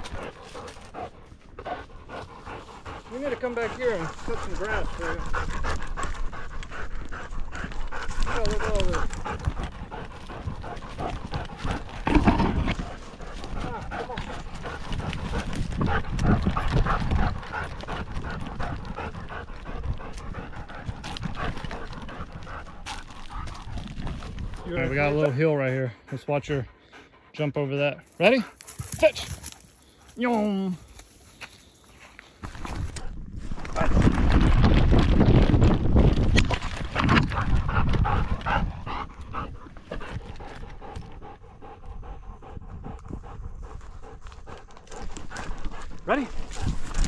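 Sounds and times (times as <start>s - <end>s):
dog panting: 0.0s - 30.2s, 37.0s - 47.0s
rumbling movement on microphone: 32.4s - 41.3s.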